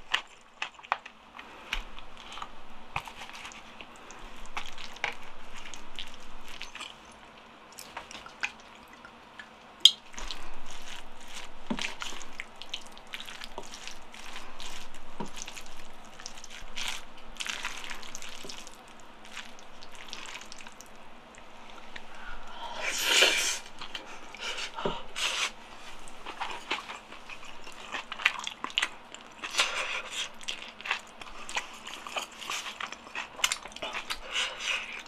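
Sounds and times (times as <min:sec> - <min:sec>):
chewing food: 0:00.0 - 0:35.0.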